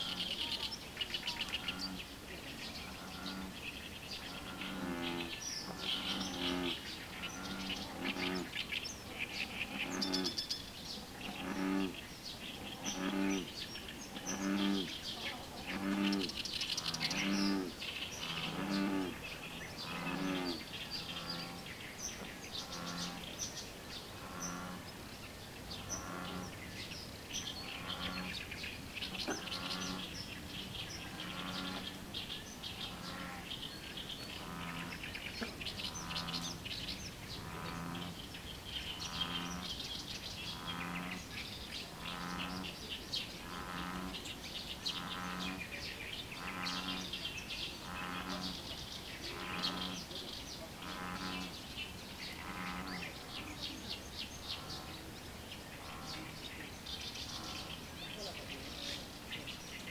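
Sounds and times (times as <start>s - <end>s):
small birds chirping: 0.0s - 59.9s
bullfrog calling: 15.6s - 21.7s, 29.1s - 30.2s, 34.3s - 36.7s, 43.4s - 44.2s, 50.8s - 51.6s.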